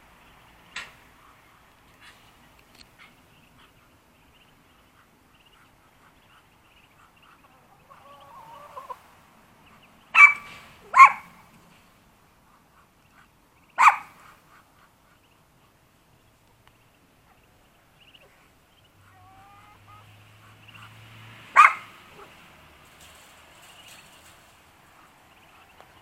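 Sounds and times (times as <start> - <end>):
small dog barking: 10.2 - 11.4, 13.8 - 14.2, 21.6 - 22.3.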